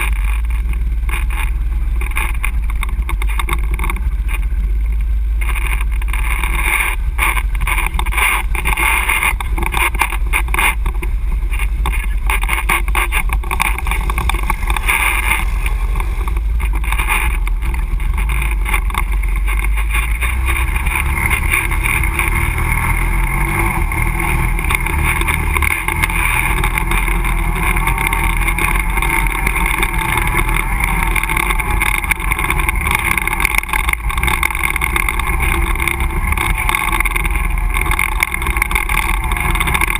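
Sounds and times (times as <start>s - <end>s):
atv engine running: 0.0s - 39.9s
knocks and rattles over bumps: 0.0s - 39.9s
splashing through mud and water: 11.6s - 39.9s.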